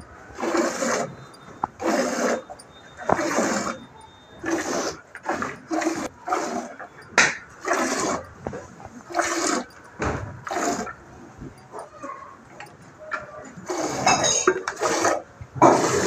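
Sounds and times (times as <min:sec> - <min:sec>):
milk squirting into steel bucket: 0:03.1 - 0:03.8.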